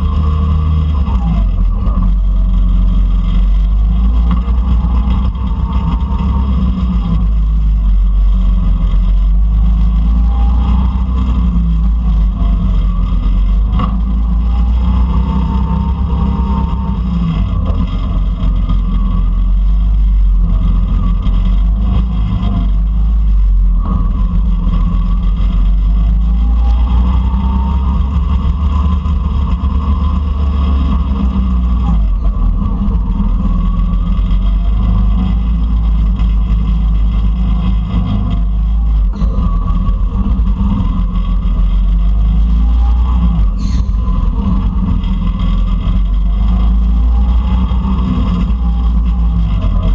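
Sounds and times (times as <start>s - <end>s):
go-kart engine running hard: 0.0s - 49.9s.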